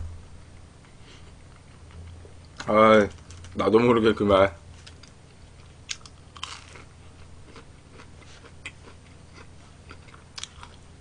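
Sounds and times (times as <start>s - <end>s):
low steady hum: 0.0s - 11.0s
chewing with small crunches: 0.6s - 3.6s, 4.8s - 11.0s
biting crunchy food: 4.8s - 10.9s.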